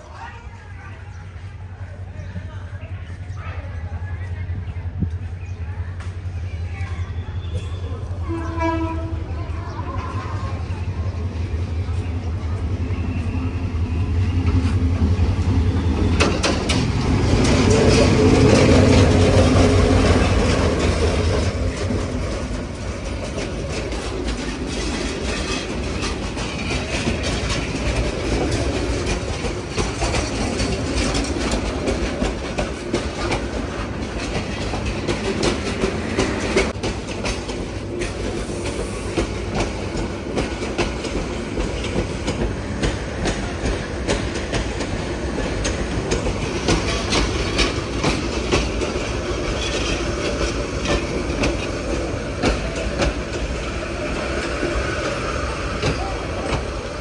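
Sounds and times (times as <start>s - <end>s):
diesel locomotive engine drone: 0.0s - 57.0s
train coaches rumbling: 0.0s - 57.0s
wheels clacking over rail joints: 14.2s - 57.0s.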